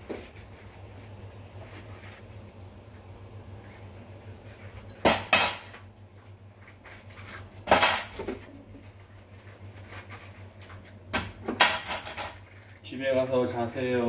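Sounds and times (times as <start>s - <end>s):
dishes clattering: 11.2s - 12.5s.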